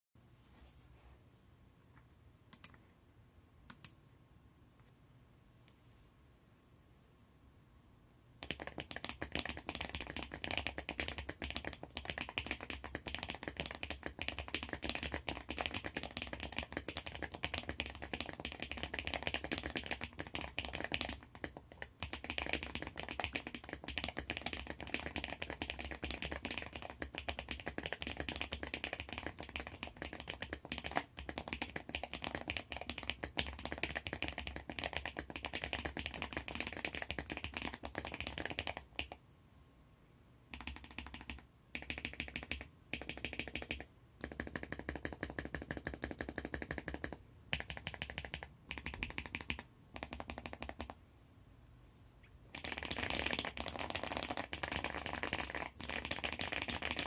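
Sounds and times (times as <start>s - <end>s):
fast mechanical keyboard typing: 8.4s - 39.2s, 40.5s - 51.0s, 52.6s - 57.0s.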